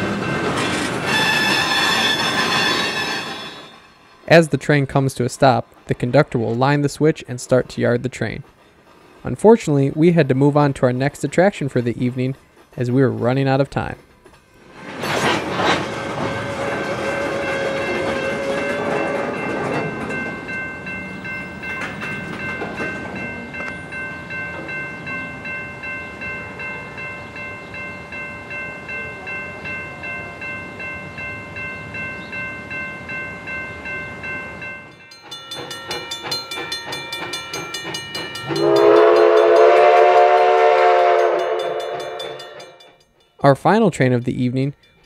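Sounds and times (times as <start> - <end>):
railroad crossing bell ringing: 0.0 - 4.8, 16.2 - 45.0
steam locomotive whistle: 1.0 - 4.0, 15.9 - 19.4, 38.4 - 42.6.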